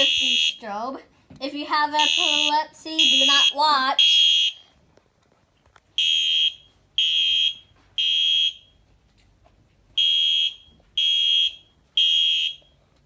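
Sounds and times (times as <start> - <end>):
fire alarm horn blasts: 0.0 - 0.7, 2.0 - 4.6, 6.0 - 8.8, 10.0 - 12.8.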